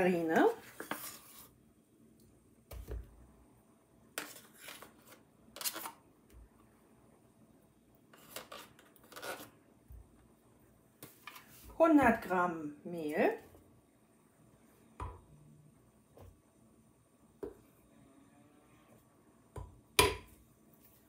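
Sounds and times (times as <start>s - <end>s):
metal spoon scraping tub: 8.1s - 9.5s.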